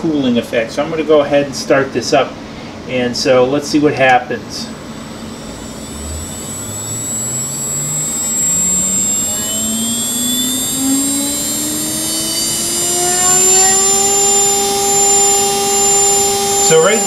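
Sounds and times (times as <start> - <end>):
router spindle whine rising: 3.7 - 17.0
steady high-pitched tone: 3.7 - 17.0.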